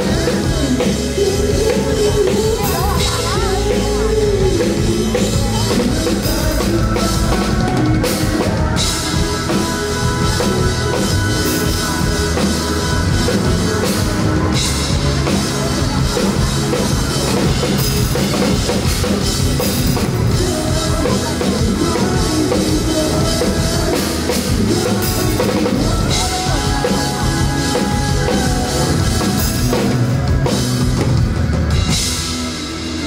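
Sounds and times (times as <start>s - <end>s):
pop-rock band playing: 0.0s - 33.0s.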